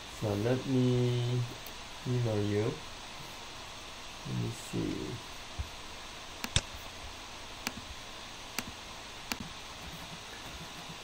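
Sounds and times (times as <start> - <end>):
steady low hiss: 0.0 - 11.0
computer mouse clicking: 6.4 - 6.7, 8.6 - 11.0.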